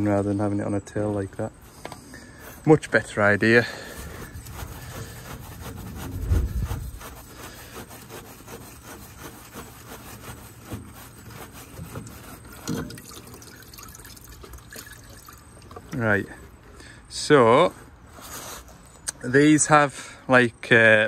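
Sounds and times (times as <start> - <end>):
rubbing and scraping of parts: 1.5 - 13.3.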